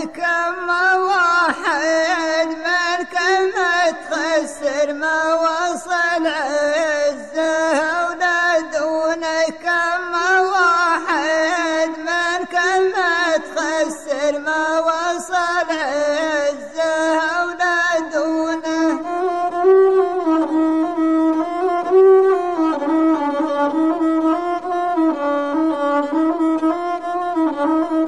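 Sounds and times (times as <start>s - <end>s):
man singing: 0.0s - 23.8s
bowed fiddle melody: 18.0s - 28.0s.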